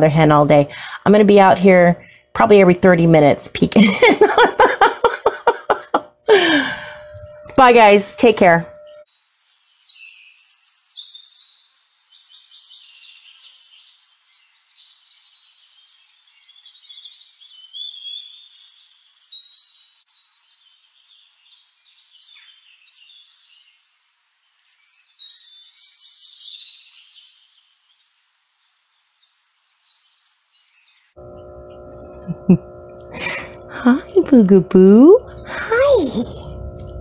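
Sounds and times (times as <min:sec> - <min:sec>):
songbirds singing: 0:07.3 - 0:32.3.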